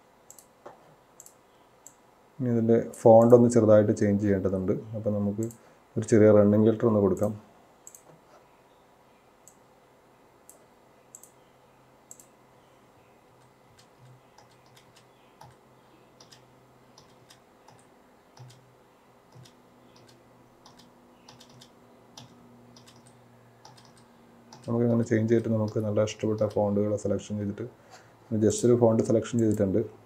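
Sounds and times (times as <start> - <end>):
keyboard and mouse clicking: 0.3 - 0.5, 1.2 - 2.0, 7.9 - 8.2, 10.5 - 11.4, 12.1 - 12.3, 13.4 - 15.6, 16.2 - 18.7, 19.3 - 24.8, 25.6 - 26.6.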